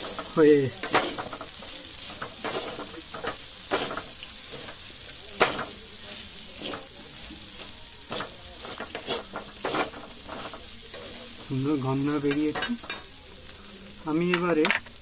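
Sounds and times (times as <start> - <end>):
metal spatula scraping pan: 0.0 - 4.8, 6.6 - 6.9, 8.1 - 11.4
rice sizzling in oil: 0.0 - 15.0.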